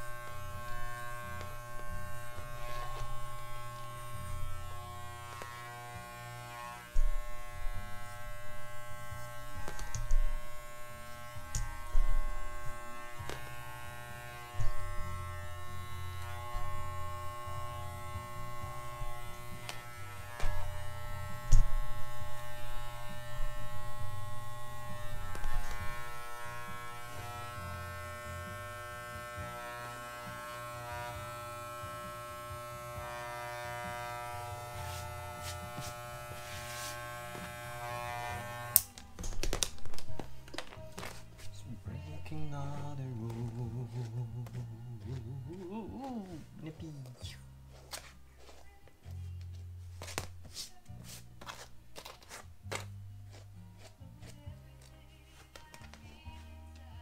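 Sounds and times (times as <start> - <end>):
hair clipper buzzing: 0.0 - 40.3, 42.3 - 47.2.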